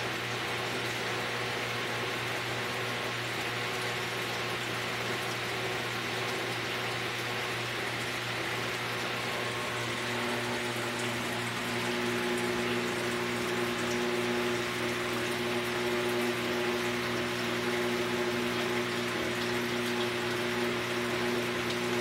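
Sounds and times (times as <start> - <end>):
aquarium pumps humming: 0.0 - 22.0
circulating water hiss: 0.0 - 22.0.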